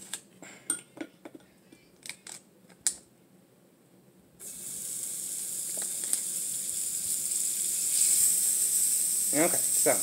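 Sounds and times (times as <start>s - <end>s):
butter sizzling on a griddle: 4.4s - 10.0s.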